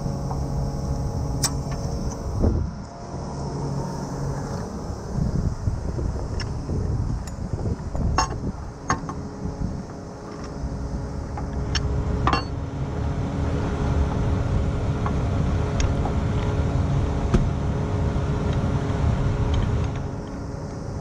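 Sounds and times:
truck engine idling: 0.0 - 7.5.

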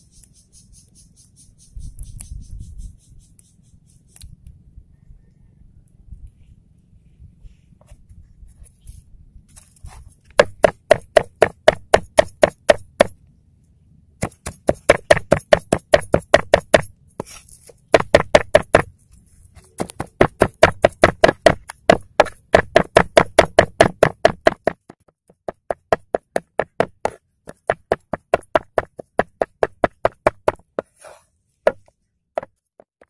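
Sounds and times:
cleaver chopping on wooden board: 10.4 - 13.2, 14.2 - 16.9, 17.9 - 18.9, 19.8 - 30.9, 31.7 - 33.0.

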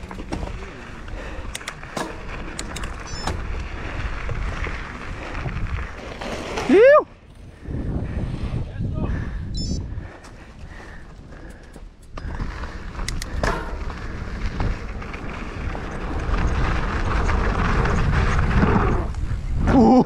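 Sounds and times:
bike rattling: 0.0 - 8.5, 9.2 - 20.0
bike tyres on loose dirt: 0.0 - 20.0
sharp clicks: 1.4 - 3.4, 13.0 - 13.4.

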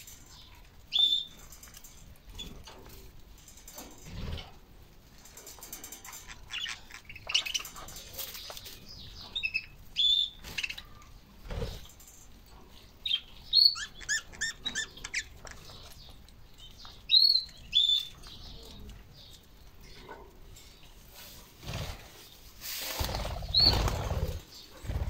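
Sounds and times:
rustling noise: 20.5 - 24.6.

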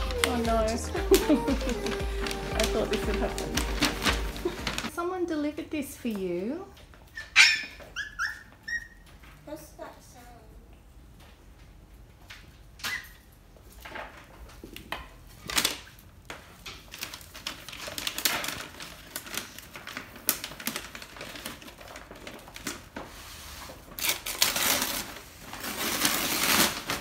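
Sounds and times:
wrapping paper crinkling and tearing: 0.0 - 4.9, 15.3 - 27.0.

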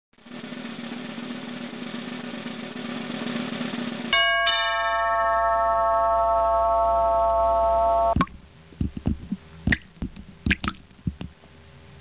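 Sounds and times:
drum roll: 0.2 - 6.5, 8.1 - 11.4
bell-like chime tones: 4.2 - 8.2.

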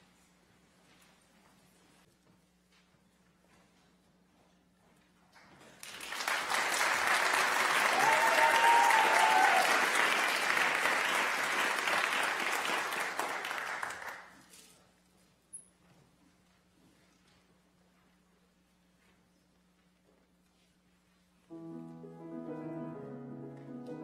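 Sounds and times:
audience applauding: 5.8 - 14.4.

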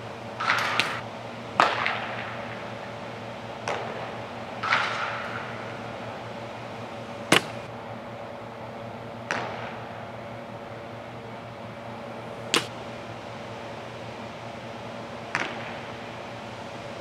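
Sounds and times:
baseball striking with echo: 0.4 - 2.6, 3.6 - 5.7, 7.3 - 7.7, 9.2 - 10.1, 12.4 - 12.9, 15.2 - 16.0.

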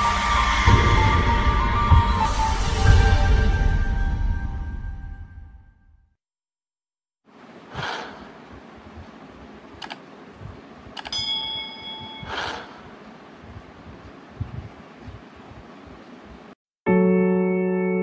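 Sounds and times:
notification bell ding: 11.1 - 12.4.

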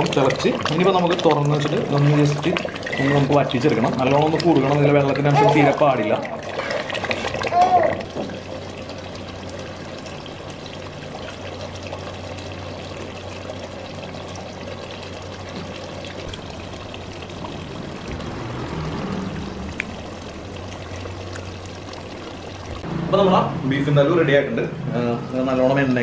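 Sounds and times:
curry bubbling in pot: 0.0 - 22.9
low hum: 14.6 - 23.1.

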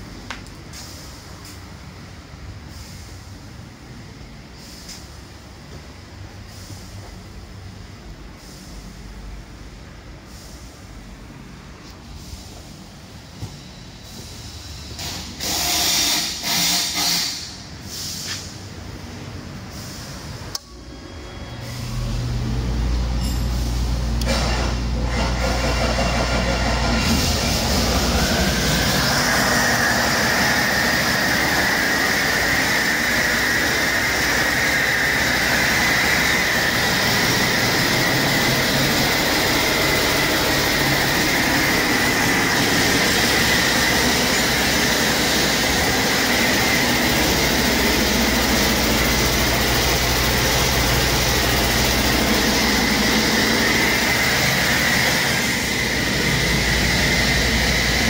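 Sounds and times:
diesel engine running: 16.4 - 58.0
high whine: 20.5 - 58.0.

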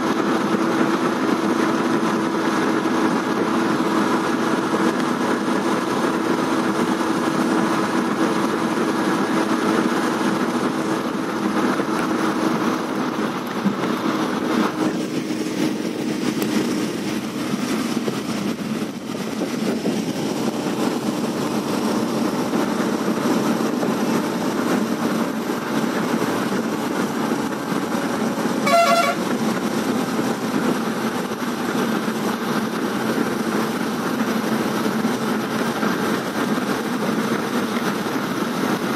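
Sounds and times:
vehicle running noise from inside: 0.0 - 38.9
short horn toot: 28.6 - 29.3.

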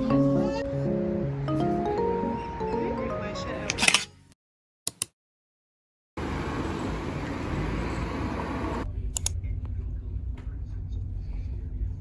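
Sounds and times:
road traffic: 0.0 - 4.2, 6.2 - 12.0
street ambience hiss: 6.2 - 9.1.

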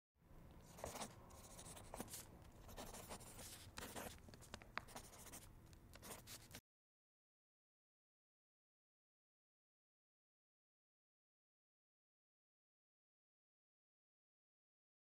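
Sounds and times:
pen scratching on paper: 0.6 - 6.6.

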